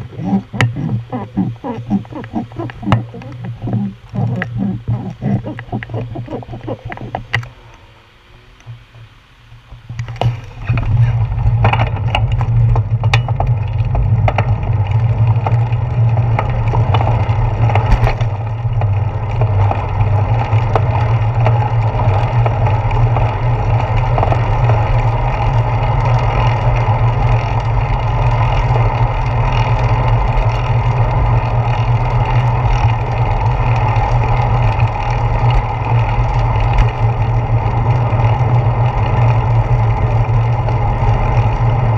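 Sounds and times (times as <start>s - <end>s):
wind rushing over camera: 0.0s - 7.6s
road rumble through handlebars: 10.2s - 41.9s.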